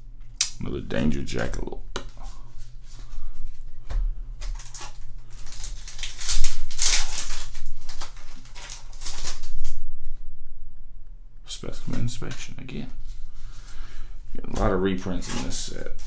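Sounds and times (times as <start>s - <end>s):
foil wrapper crinkling and tearing: 4.4s - 9.8s.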